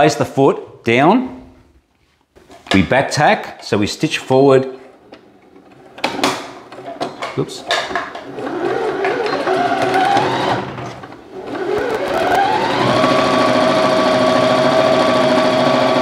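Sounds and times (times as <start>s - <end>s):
sewing machine stitching: 8.1s - 16.0s.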